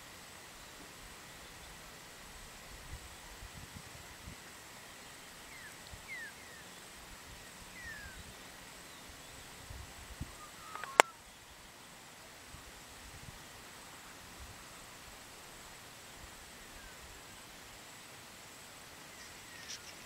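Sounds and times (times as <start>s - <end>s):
faint outdoor hiss: 0.0s - 20.0s
short downward bird chirps: 10.4s - 11.2s
sharp click: 10.7s - 11.1s.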